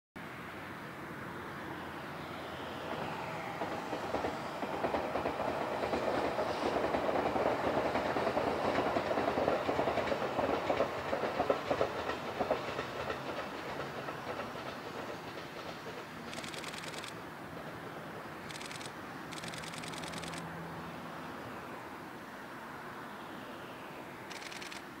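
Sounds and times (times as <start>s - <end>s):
electric train approaching: 0.2s - 25.0s
wheels clacking over rail joints: 3.6s - 20.4s.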